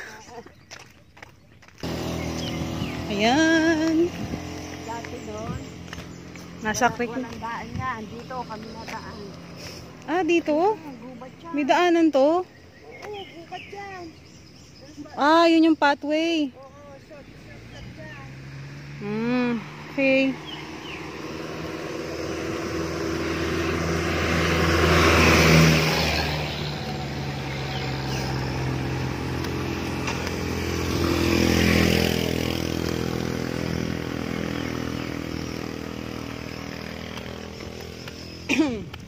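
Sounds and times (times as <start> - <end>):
motorcycle passing: 0.0 - 39.0
vehicles passing: 0.0 - 39.0.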